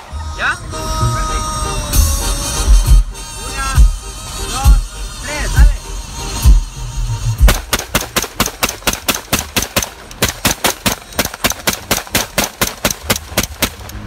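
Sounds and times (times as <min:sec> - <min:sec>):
rapid rifle shots: 0:07.5 - 0:14.0.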